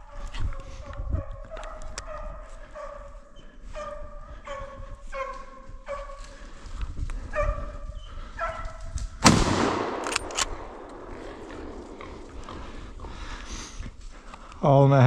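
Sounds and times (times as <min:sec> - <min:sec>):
hounds barking: 0:00.0 - 0:06.6, 0:07.2 - 0:09.0, 0:11.0 - 0:13.2
rifle gunshot echoing: 0:09.2 - 0:12.5
sharp clicks: 0:09.3 - 0:12.2.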